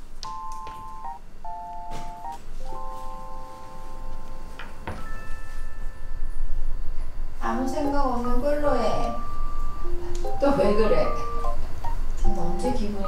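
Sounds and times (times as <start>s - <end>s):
electronic beeping tune: 9.0s - 11.7s.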